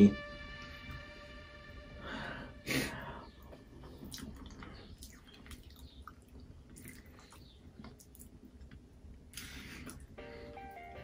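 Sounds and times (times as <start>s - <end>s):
person chewing food: 3.8s - 10.2s.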